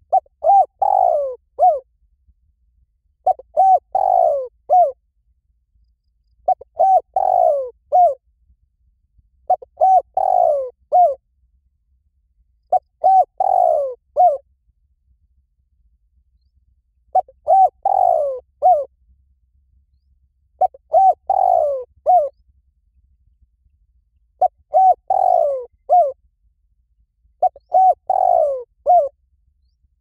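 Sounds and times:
dove cooing: 0:00.0 - 0:01.8, 0:03.2 - 0:05.0, 0:06.4 - 0:08.2, 0:09.5 - 0:11.2, 0:12.7 - 0:14.4, 0:17.1 - 0:18.9, 0:20.6 - 0:22.4, 0:24.4 - 0:26.2, 0:27.4 - 0:29.1.

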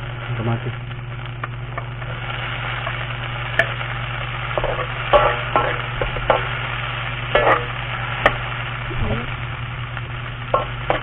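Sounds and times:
vegetables sizzling in a wok: 0:00.0 - 0:11.0
metal spatula scraping a wok: 0:04.6 - 0:06.5, 0:07.4 - 0:07.8.

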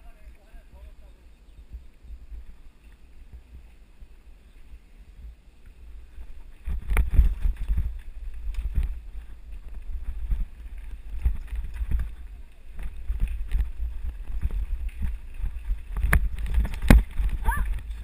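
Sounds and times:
wind buffeting microphone: 0:00.0 - 0:18.0
bike rumbling over dirt trail: 0:05.8 - 0:18.0.

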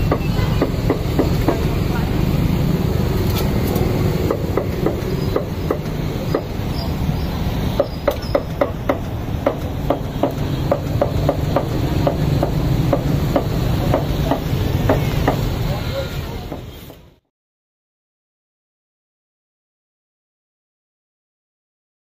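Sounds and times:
cooking utensils knocking: 0:00.0 - 0:02.1, 0:03.4 - 0:17.0
low rumble of street noise: 0:00.0 - 0:17.2.

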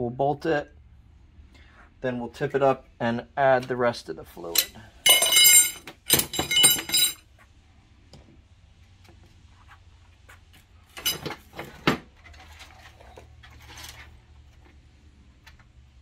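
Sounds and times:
metal tools clinking and clanking: 0:04.4 - 0:07.3, 0:11.0 - 0:14.0.

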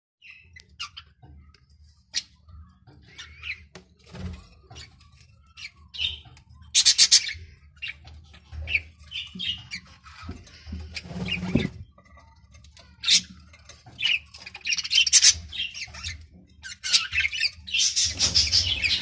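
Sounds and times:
budgerigars chattering: 0:05.6 - 0:08.0, 0:14.0 - 0:19.0.

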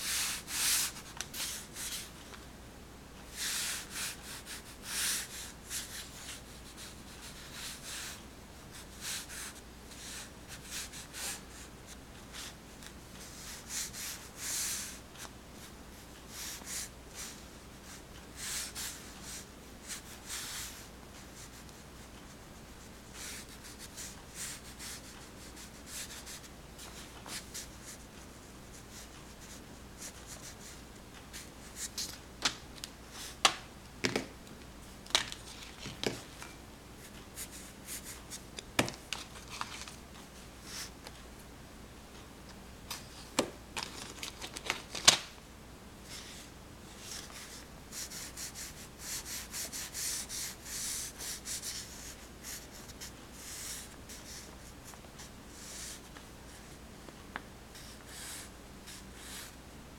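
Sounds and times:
crayon scratching on paper: 0:47.1 - 0:54.4.

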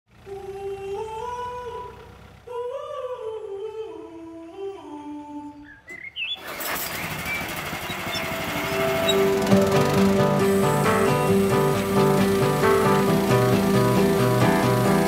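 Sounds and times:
loud rough noise: 0:06.4 - 0:15.0
person humming a slow tune: 0:08.8 - 0:15.0.

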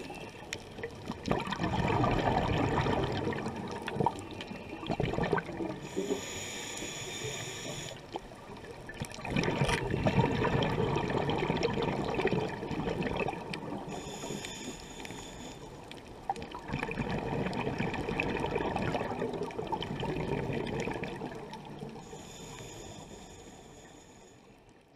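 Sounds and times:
rush of exhaled bubbles: 0:00.0 - 0:06.4, 0:07.7 - 0:14.4, 0:16.3 - 0:22.1
regulator hiss on inhale: 0:05.7 - 0:08.2, 0:13.8 - 0:16.0, 0:22.0 - 0:24.9.

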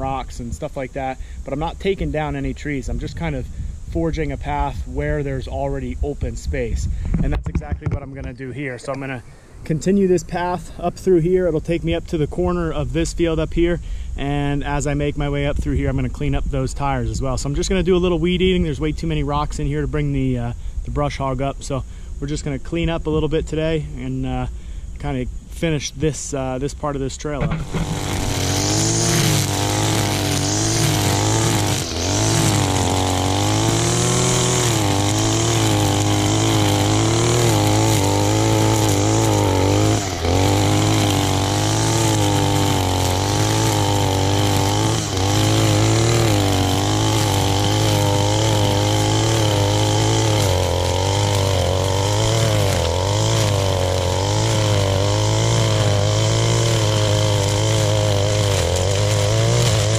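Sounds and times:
string trimmer cutting weeds: 0:27.2 - 0:59.9.

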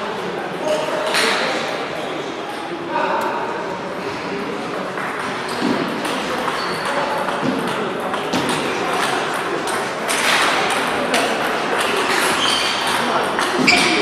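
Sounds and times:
table tennis balls tapping: 0:04.7 - 0:14.0.

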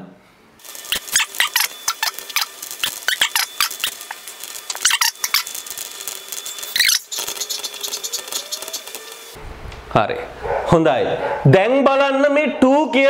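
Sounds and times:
chalk scratching on chalkboard: 0:07.2 - 0:09.1.

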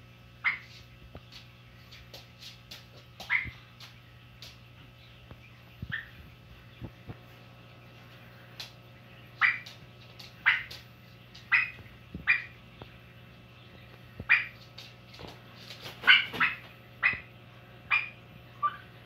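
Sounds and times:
turkey calling: 0:03.2 - 0:03.6, 0:09.3 - 0:09.8, 0:10.4 - 0:10.8, 0:11.4 - 0:12.6, 0:14.2 - 0:14.7, 0:16.0 - 0:17.3, 0:17.9 - 0:19.0.

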